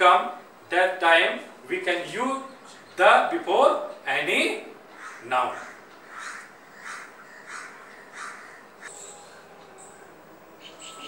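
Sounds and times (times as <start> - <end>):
crow cawing: 4.9 - 8.9.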